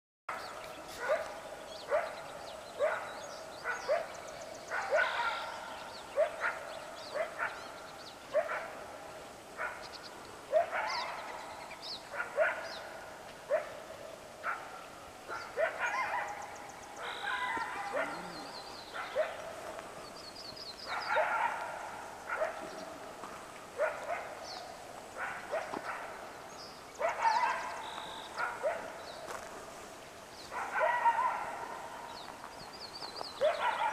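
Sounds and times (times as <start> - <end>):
coyotes yipping and barking: 0.3 - 29.5, 30.4 - 32.4, 33.0 - 33.9
faint bird chirps: 15.3 - 19.4, 27.0 - 28.6.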